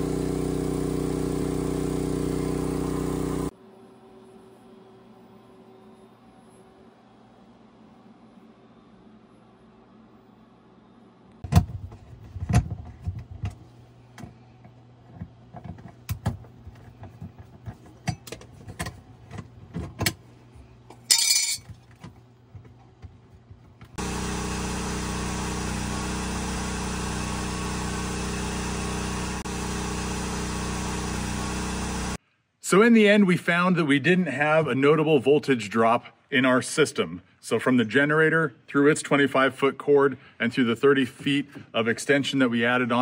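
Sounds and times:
loud steady machine drone: 0.0 - 6.0, 24.0 - 32.2.

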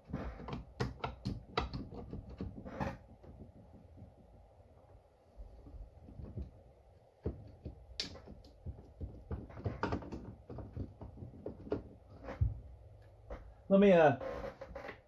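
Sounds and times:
metal clicks taps and knocks: 0.3 - 4.3, 7.2 - 12.1.

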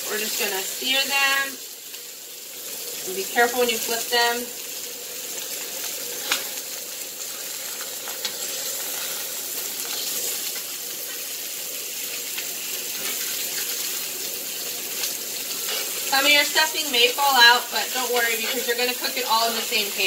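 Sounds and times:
chicken sizzling in a skillet: 0.0 - 20.0
person talking: 16.1 - 20.0.

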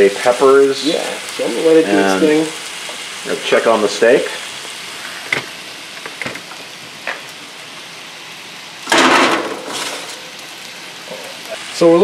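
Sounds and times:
vegetables sizzling in skillet: 0.0 - 12.0
oven rack metallic clatter: 8.9 - 10.2.

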